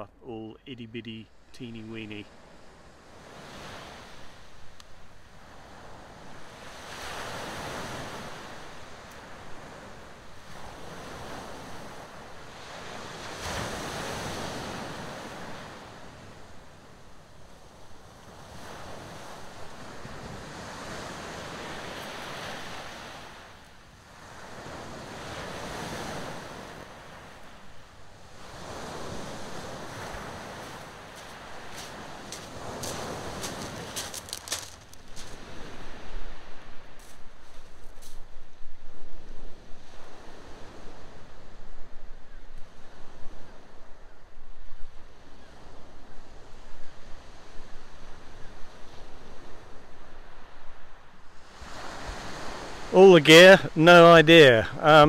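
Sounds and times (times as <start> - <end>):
waves washing up shingle beach: 5.3 - 16.7, 18.3 - 38.2, 51.4 - 55.0.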